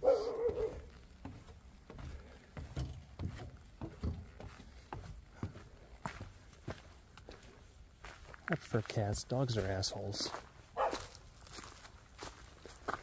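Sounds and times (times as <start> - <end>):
dog barking: 0.0 - 0.9, 10.8 - 11.2
footsteps on dirt trail: 0.0 - 13.0
footsteps on wooden steps: 0.0 - 13.0.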